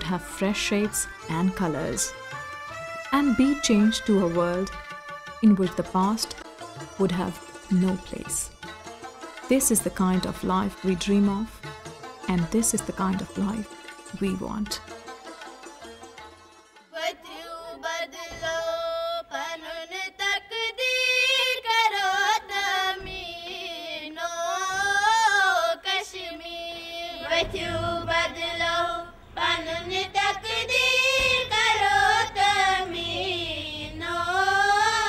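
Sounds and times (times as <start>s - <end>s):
low musical accompaniment: 0.0s - 17.0s, 27.1s - 35.0s
high voices singing: 17.0s - 35.0s.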